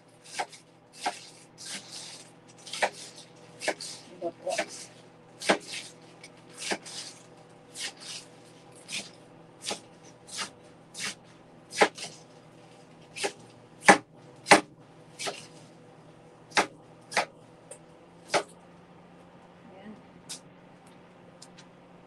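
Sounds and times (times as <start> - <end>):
knife chopping on cutting board: 0.3 - 1.9, 2.7 - 4.0, 5.4 - 5.9, 8.9 - 12.1, 13.2 - 15.5, 16.5 - 17.3, 18.3 - 18.5.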